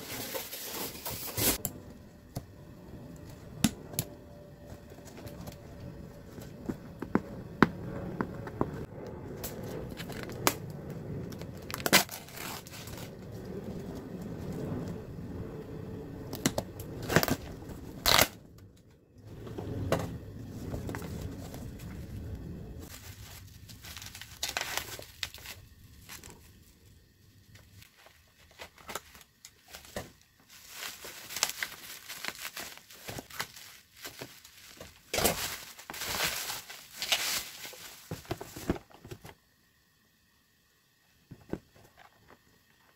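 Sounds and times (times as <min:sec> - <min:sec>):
bubble wrap rustling: 0:00.0 - 0:01.6, 0:09.4 - 0:15.0, 0:16.3 - 0:18.4, 0:20.3 - 0:39.2
tape and cardboard ripping: 0:00.0 - 0:01.6, 0:11.6 - 0:13.1, 0:16.4 - 0:18.4, 0:22.9 - 0:26.4, 0:30.8 - 0:38.8.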